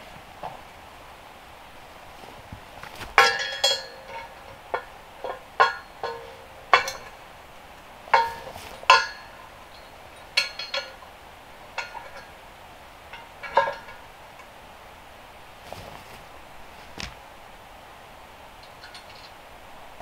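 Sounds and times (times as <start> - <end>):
steel rails clinking: 2.9 - 14.8, 18.6 - 19.5.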